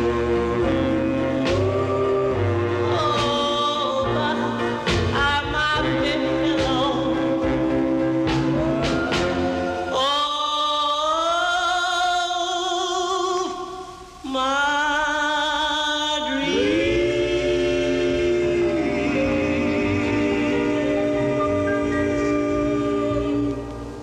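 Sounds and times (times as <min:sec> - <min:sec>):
male lead and chorus singing: 0:00.0 - 0:10.2, 0:16.2 - 0:23.9
backing band: 0:00.0 - 0:10.4, 0:16.5 - 0:24.0.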